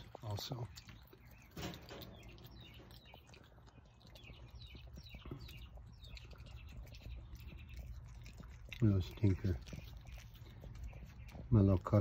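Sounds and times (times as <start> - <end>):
opossum chewing and clicking: 0.0 - 12.0
small bird chirps: 0.0 - 12.0.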